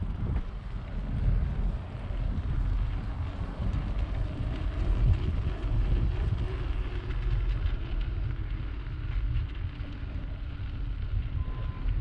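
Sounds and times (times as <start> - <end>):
bicycle tyres rolling on pavers: 0.0 - 12.0
wind rumbling on microphone: 0.0 - 12.0.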